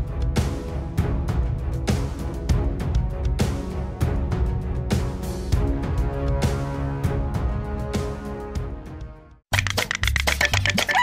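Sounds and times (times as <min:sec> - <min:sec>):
background music: 0:00.0 - 0:11.0
upbeat music with quick beat: 0:09.6 - 0:11.0.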